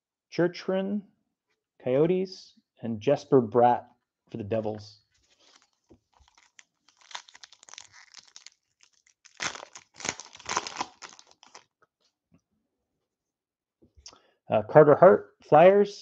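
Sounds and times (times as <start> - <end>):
foil wrapper tearing and crinkling: 5.3 - 11.7.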